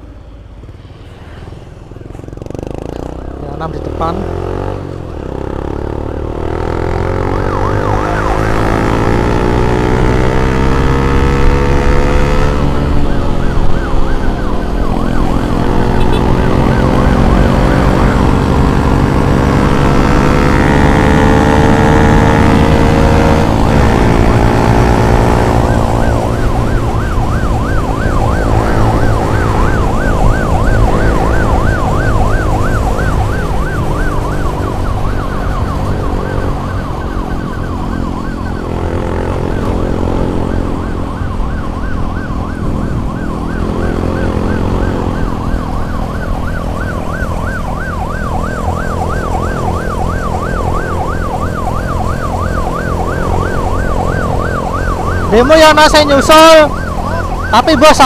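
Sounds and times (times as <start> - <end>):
ambulance siren: 2.0 - 58.0.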